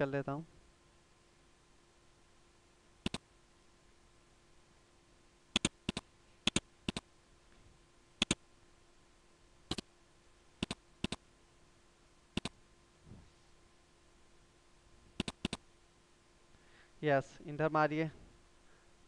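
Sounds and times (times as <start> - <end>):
faint steady hum: 0.0 - 19.0
keyboard typing: 3.0 - 3.2, 5.6 - 7.0, 8.2 - 8.4, 10.6 - 11.2, 15.2 - 15.6.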